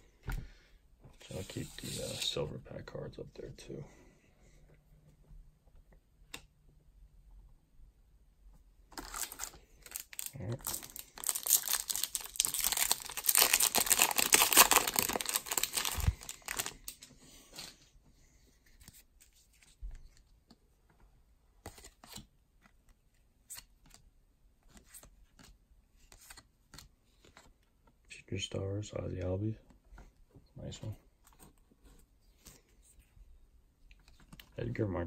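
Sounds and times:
wrapper crinkling and tearing: 8.9 - 17.0.

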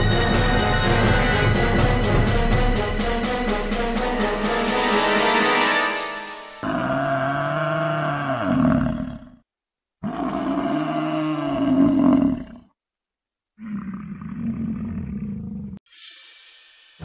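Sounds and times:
deep animal roars: 6.6 - 9.4, 10.0 - 12.7, 13.6 - 15.8.

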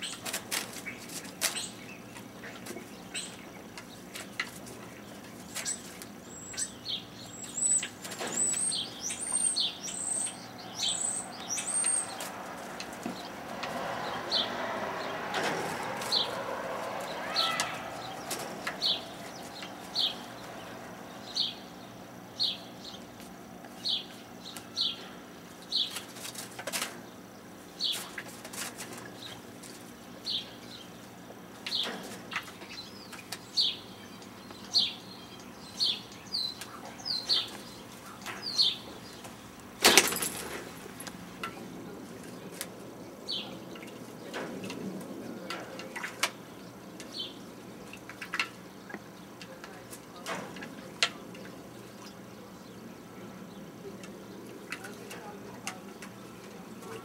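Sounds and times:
high falling bird chirps: 5.0 - 23.2.

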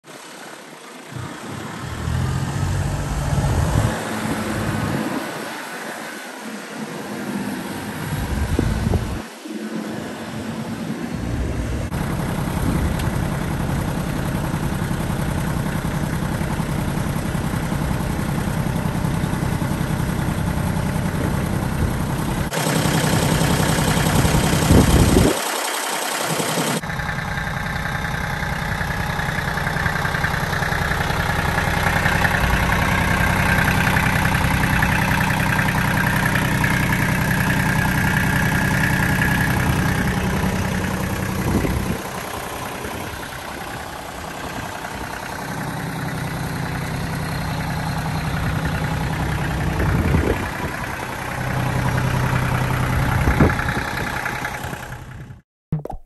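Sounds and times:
tractor diesel engine idling: 0.0 - 55.4.

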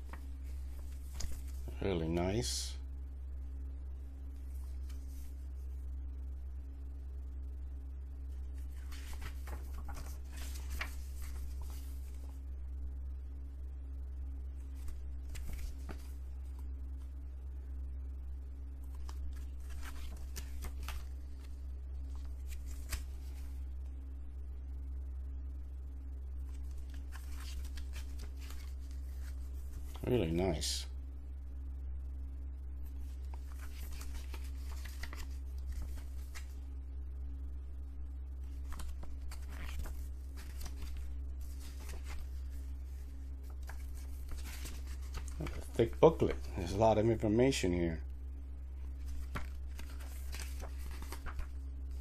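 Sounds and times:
paper pages rustling: 0.0 - 1.8, 4.4 - 5.7, 8.4 - 12.4, 14.6 - 16.6, 18.8 - 23.6, 26.4 - 30.1, 32.8 - 36.6, 38.4 - 47.0, 48.8 - 52.0
steady low hum: 0.0 - 52.0.

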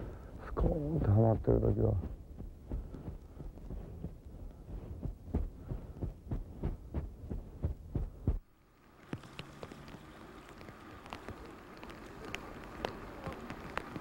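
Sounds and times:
dull low thumps: 0.0 - 8.4.

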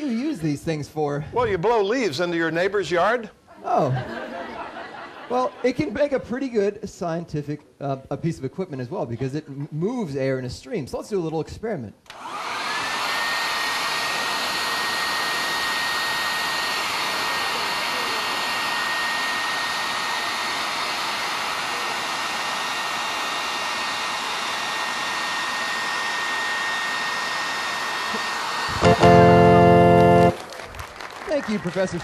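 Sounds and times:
leaf blower running: 12.1 - 30.4.

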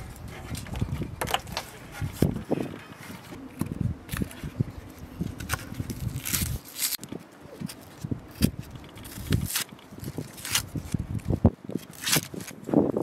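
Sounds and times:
onion skins crackling and rustling: 0.0 - 12.7
papery tearing: 5.2 - 7.0, 7.6 - 11.1, 11.8 - 12.6.

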